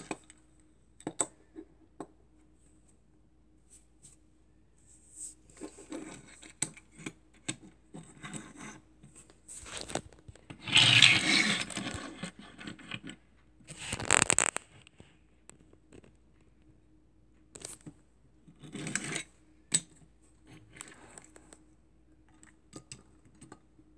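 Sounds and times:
toy scraping on tabletop: 9.7 - 13.1.

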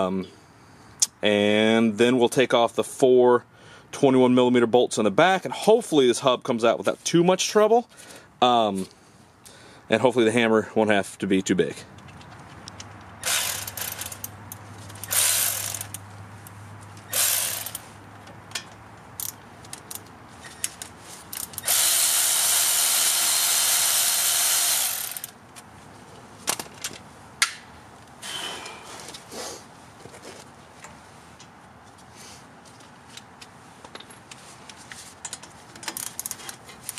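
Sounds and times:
cordless power ratchet whirring: 13.2 - 14.3, 15.0 - 16.0, 17.1 - 17.9, 21.3 - 25.4
sharp ratchet clicks: 13.2 - 16.0, 17.1 - 17.9, 19.2 - 20.0, 21.3 - 25.4.

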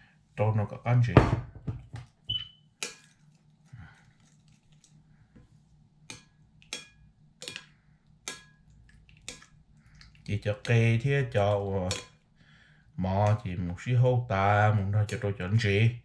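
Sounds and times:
metal spoon clinking against ceramic bowl: 6.1 - 7.7, 11.9 - 12.2.

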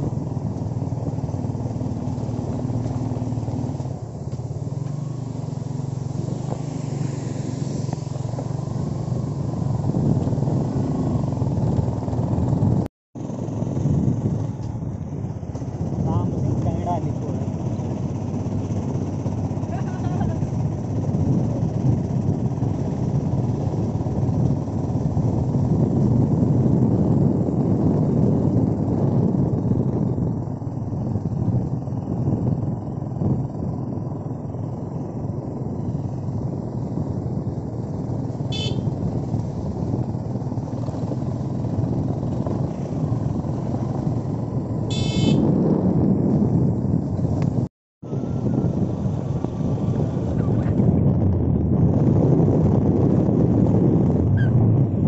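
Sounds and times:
vehicle engine and road noise: 0.0 - 55.0
short horn toot: 38.5 - 39.0, 44.9 - 45.5.

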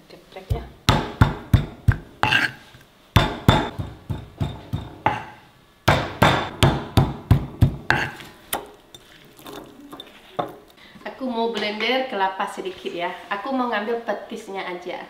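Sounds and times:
stone pestle pounding in mortar: 0.5 - 2.6, 3.2 - 5.3, 5.9 - 8.7.

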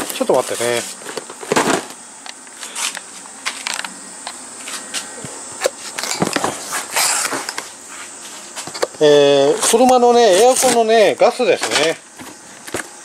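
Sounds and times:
cardboard rustling and scraping: 5.8 - 8.8, 9.4 - 13.0.

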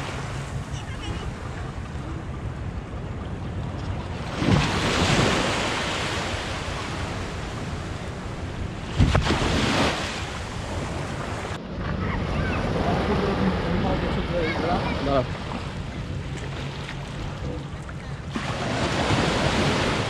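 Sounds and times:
wind on microphone: 2.0 - 16.3
sea waves breaking on sand: 4.0 - 17.6, 18.2 - 20.0.

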